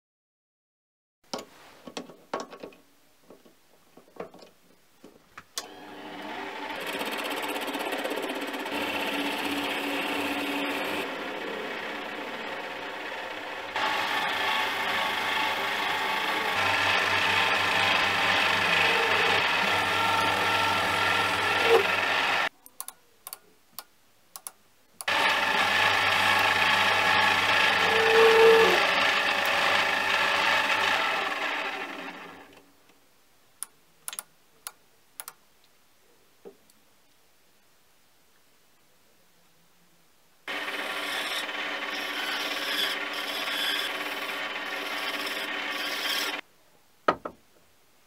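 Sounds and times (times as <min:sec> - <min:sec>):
lathe cutting steel: 0:05.6 - 0:22.5, 0:25.1 - 0:32.5, 0:40.5 - 0:46.4
lathe gear whine: 0:05.6 - 0:22.5, 0:25.1 - 0:32.5, 0:40.5 - 0:46.4.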